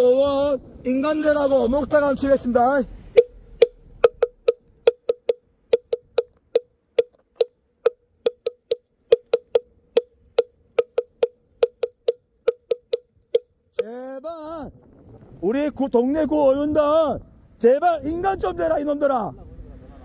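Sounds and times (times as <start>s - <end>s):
hollow wooden block knocks: 3.1s - 13.9s.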